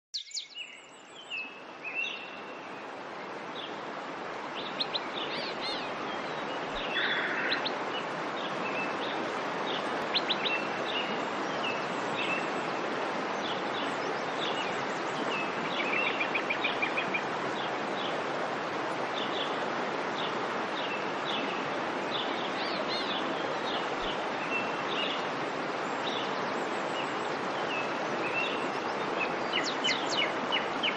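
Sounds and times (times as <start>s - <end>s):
birds chirping and trilling: 4.6s - 18.3s, 20.2s - 30.9s.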